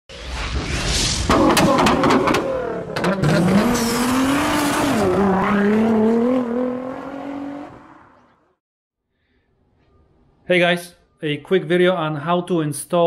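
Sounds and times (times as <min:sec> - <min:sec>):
race car engine revving: 0:01.3 - 0:08.4.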